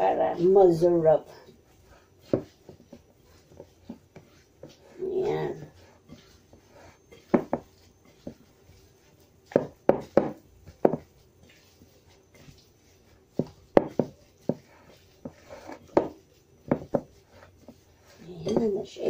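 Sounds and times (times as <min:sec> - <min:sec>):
utensil knocking against a bowl: 0:07.2 - 0:07.7, 0:09.5 - 0:11.1, 0:13.4 - 0:14.6.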